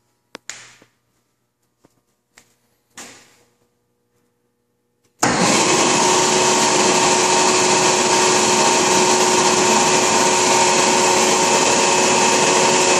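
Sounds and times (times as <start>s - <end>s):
band saw motor whirring: 5.2s - 12.9s.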